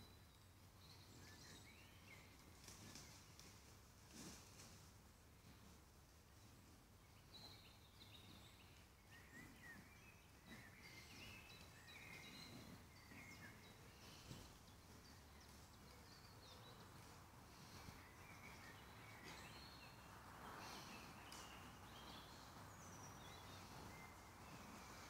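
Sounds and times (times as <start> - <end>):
birds chirping and whistling: 7.3 - 25.0.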